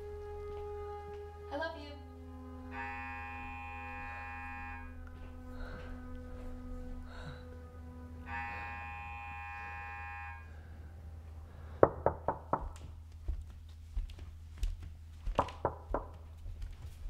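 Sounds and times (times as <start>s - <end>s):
low steady music tone: 0.0s - 15.1s
chord of ringing tones: 2.2s - 6.4s, 7.2s - 11.0s
knocking on door: 11.8s - 12.8s, 15.4s - 16.2s.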